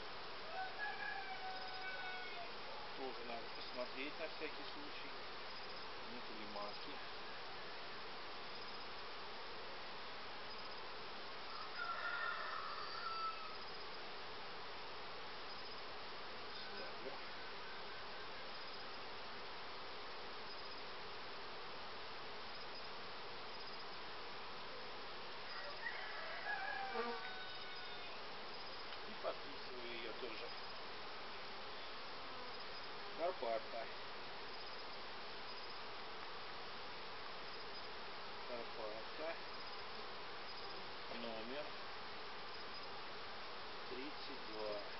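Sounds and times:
honeybees buzzing: 0:26.6 - 0:27.3.

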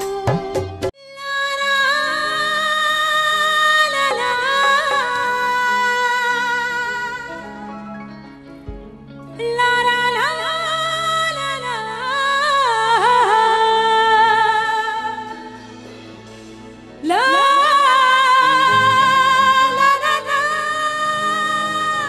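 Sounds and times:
woman singing with vibrato: 0:00.0 - 0:07.5, 0:17.0 - 0:22.0
soft instrumental accompaniment: 0:00.0 - 0:22.0.

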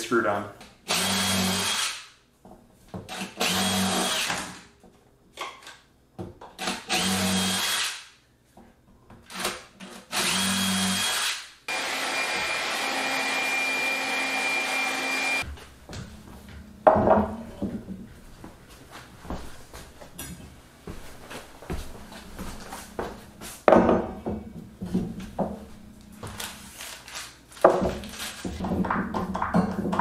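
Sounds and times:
cordless drill motor whine: 0:10.1 - 0:15.4.

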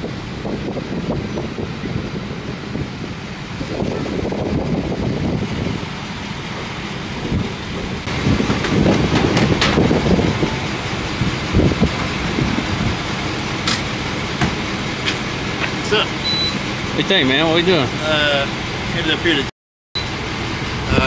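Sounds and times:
truck engine idling: 0:00.0 - 0:21.0.

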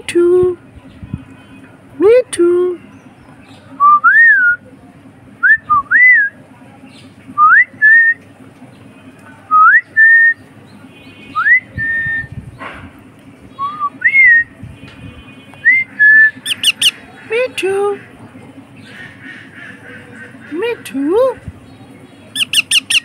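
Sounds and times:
rising whistled calls: 0:13.5 - 0:14.5, 0:15.7 - 0:17.0, 0:22.4 - 0:23.0.

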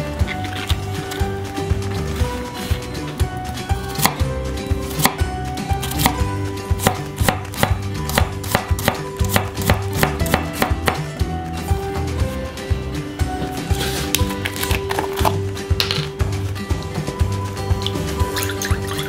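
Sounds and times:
knife chopping on wooden board: 0:05.0 - 0:05.2, 0:06.8 - 0:11.1.

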